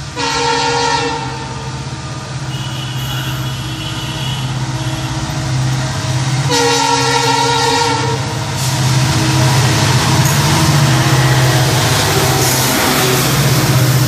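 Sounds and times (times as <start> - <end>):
diesel locomotive engine running: 0.0 - 14.0
train wheel noise: 0.0 - 14.0
locomotive air horn blast: 0.2 - 1.7, 2.5 - 5.3, 6.5 - 9.6.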